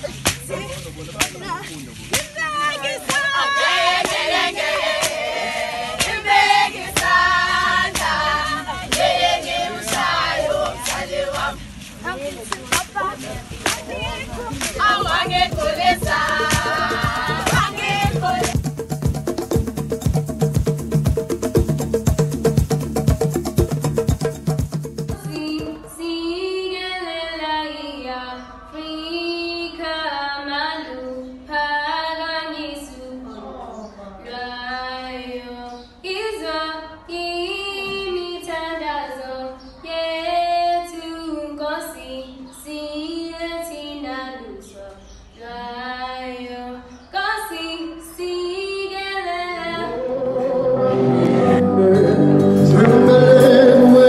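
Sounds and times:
women singing and chanting: 0:00.0 - 0:18.8, 0:25.0 - 0:54.0
sharp percussive beat: 0:12.8 - 0:26.1.

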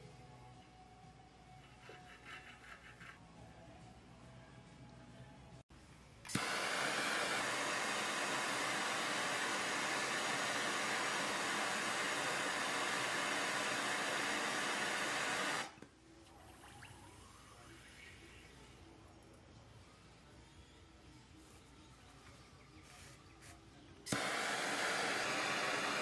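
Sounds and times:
gas torch hissing: 0:06.3 - 0:15.8, 0:24.1 - 0:26.0.

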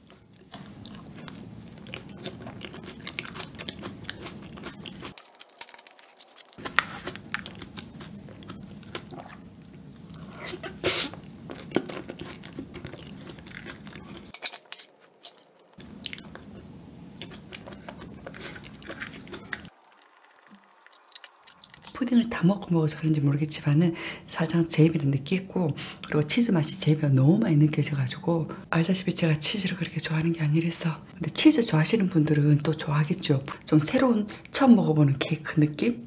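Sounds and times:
wet chewing: 0:00.0 - 0:22.1.

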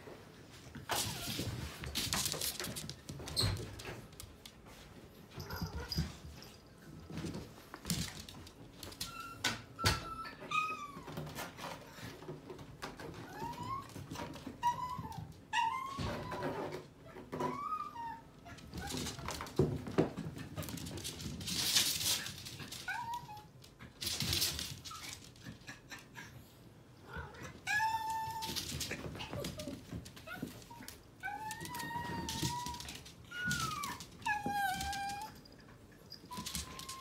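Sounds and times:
animals scuffling on floor: 0:00.4 - 0:09.4, 0:18.5 - 0:25.6
small dog whining: 0:08.9 - 0:11.3, 0:13.2 - 0:19.4, 0:22.8 - 0:23.8, 0:27.1 - 0:37.0.

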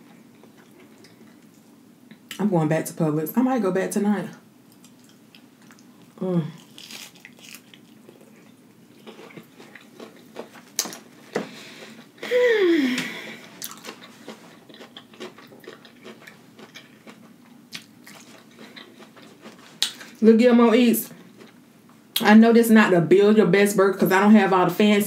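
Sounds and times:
person humming mmm: 0:06.2 - 0:06.6, 0:12.2 - 0:13.4.

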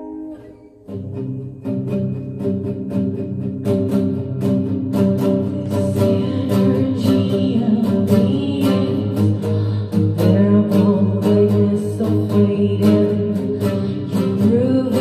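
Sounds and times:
acoustic guitar strumming: 0:00.0 - 0:15.0
woman singing: 0:05.2 - 0:15.0.

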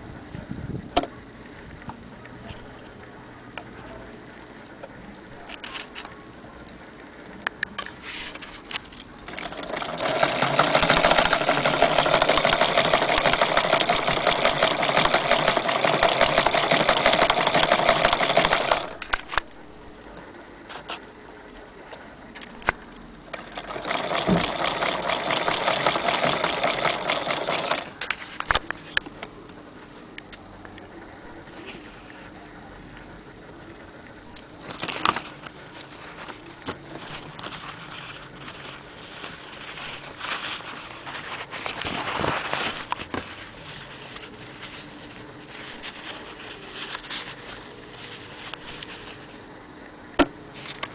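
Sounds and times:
sewing machine clatter: 0:09.2 - 0:19.4, 0:23.4 - 0:27.9.

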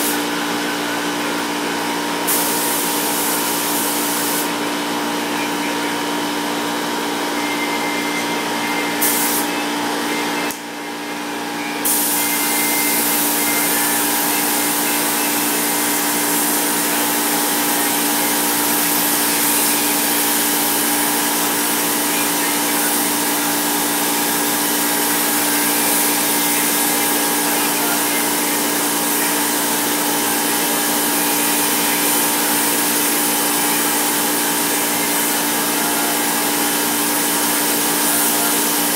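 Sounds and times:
steady mechanical hum: 0:00.0 - 0:38.9
spray gun hissing: 0:02.3 - 0:04.6, 0:09.0 - 0:09.4, 0:11.8 - 0:23.2.

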